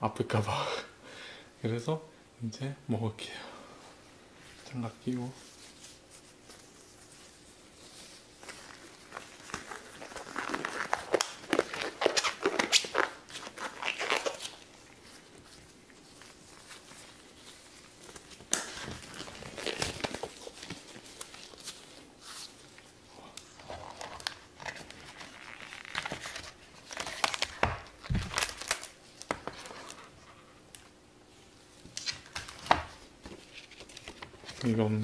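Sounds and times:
cardboard packaging rustling: 5.2s - 22.9s, 23.5s - 30.2s.

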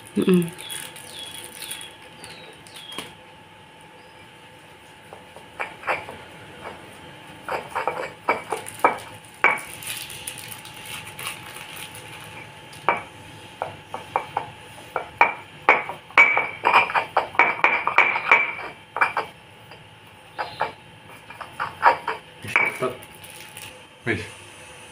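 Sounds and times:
pestle knocking in a mortar: 5.1s - 6.8s, 12.9s - 19.4s, 20.3s - 22.9s.

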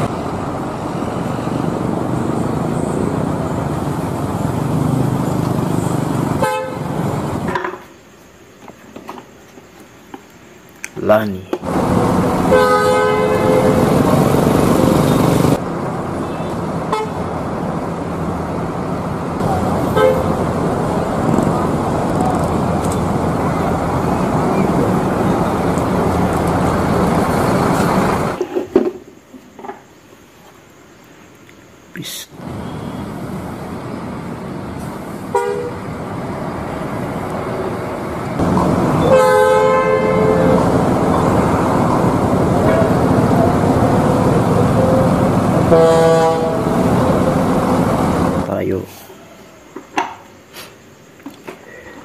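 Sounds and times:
bus engines rumbling: 0.0s - 28.7s, 31.6s - 52.0s
traffic: 0.0s - 52.0s
two-tone bus horn blast: 6.3s - 7.1s, 12.4s - 15.6s, 16.2s - 17.4s, 19.4s - 20.7s, 35.3s - 36.0s, 38.4s - 48.4s.

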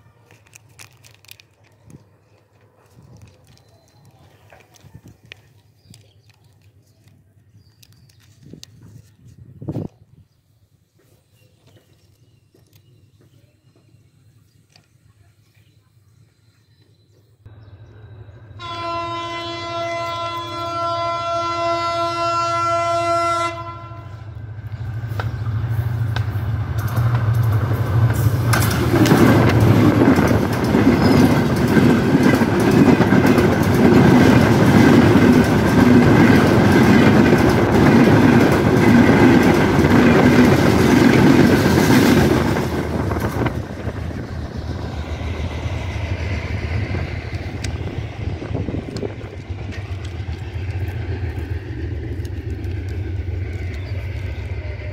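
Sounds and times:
train horn blast: 18.6s - 24.4s
train wheels clattering over rails: 24.8s - 54.9s.

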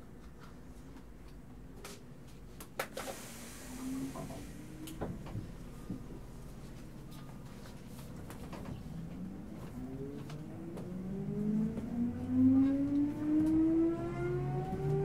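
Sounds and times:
air hiss: 2.9s - 5.4s
low train rumble: 2.9s - 15.0s.

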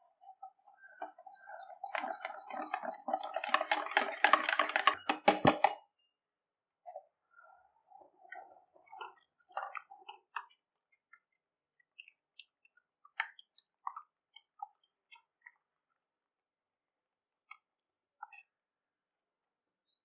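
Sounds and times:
liquid pouring and splashing: 0.0s - 5.6s, 7.9s - 16.0s
spatula stirring with squelches: 0.0s - 5.8s, 6.8s - 16.5s, 17.3s - 18.8s.

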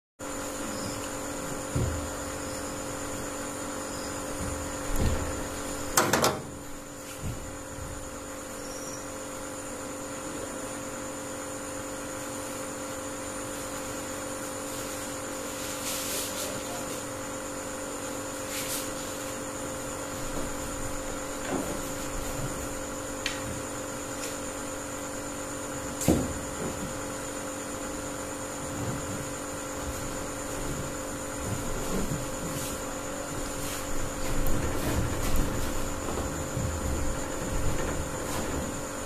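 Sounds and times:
steady electrical hum: 0.2s - 39.0s.

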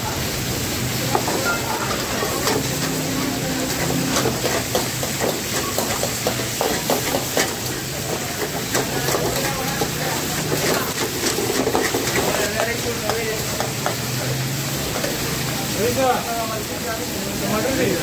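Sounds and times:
food sizzling in hot oil: 0.0s - 18.0s
metal ladle scraping a pan: 1.1s - 12.9s.

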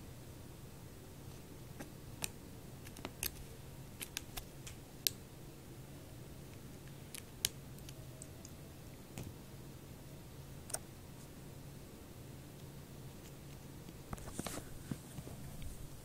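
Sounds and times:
faint low hum: 0.0s - 16.0s
kitten claws clicking on toy: 4.0s - 4.8s.

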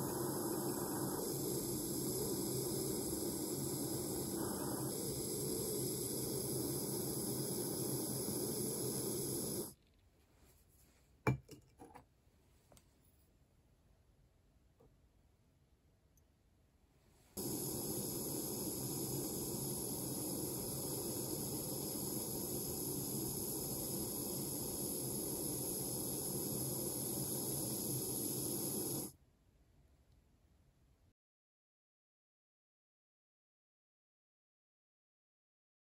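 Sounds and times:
gas torch flame hissing: 0.0s - 9.8s, 17.4s - 29.2s.

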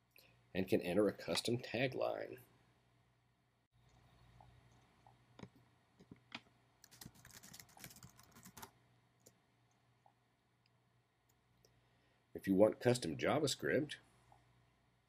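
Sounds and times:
faint keyboard typing: 3.8s - 9.8s.

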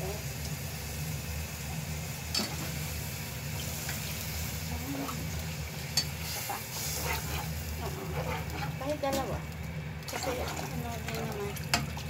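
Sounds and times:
spatula scraping stew in pot: 6.0s - 9.3s.

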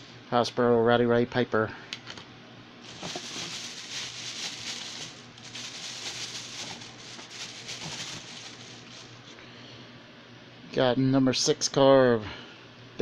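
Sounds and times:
plastic tote rustling: 2.8s - 9.3s.

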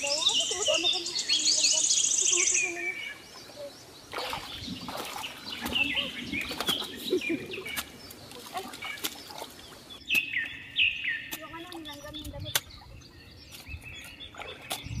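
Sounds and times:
small birds chirping: 0.0s - 15.0s
water splashing: 2.7s - 10.3s, 11.3s - 15.0s
shovel digging wet mud: 4.1s - 10.4s, 11.2s - 12.8s, 13.5s - 15.0s.

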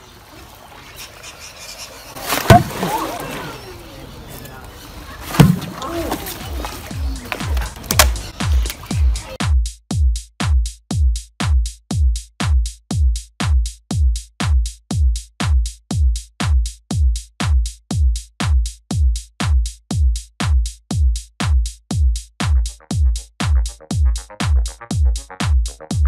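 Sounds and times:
electronic music with kick beat: 6.5s - 26.0s.

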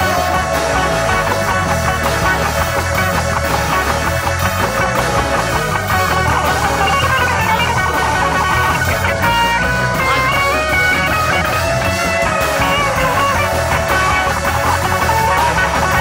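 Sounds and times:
guitar melody with bends: 0.0s - 16.0s
steady bass line: 0.0s - 16.0s.

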